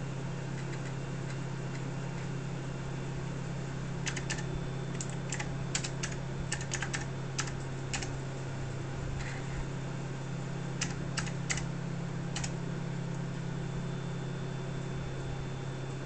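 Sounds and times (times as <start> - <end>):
keyboard key clicks: 4.0 - 8.1, 10.8 - 11.7.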